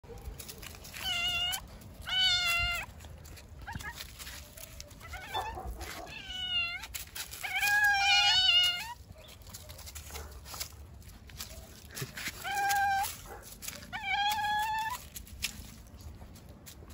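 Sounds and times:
kitten meowing: 1.0 - 2.9, 5.0 - 9.0, 12.4 - 13.1.

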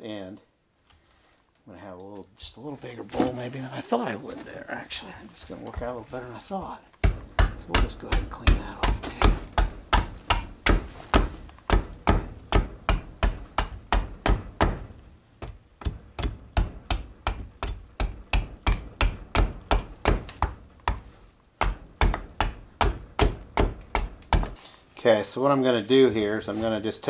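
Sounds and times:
axe chopping wood: 7.0 - 24.6.

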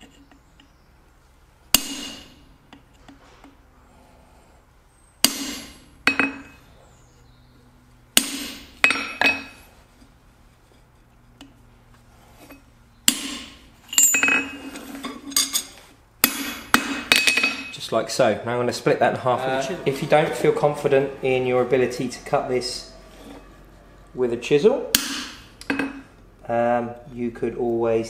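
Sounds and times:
hammer striking chisel on steel: 1.8 - 2.4, 5.2 - 6.6, 8.2 - 9.6, 13.0 - 14.6, 15.4 - 17.8, 24.9 - 26.0.

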